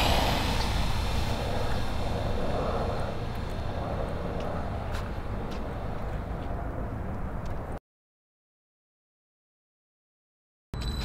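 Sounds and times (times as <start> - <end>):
low outdoor rumble: 0.0 - 7.8.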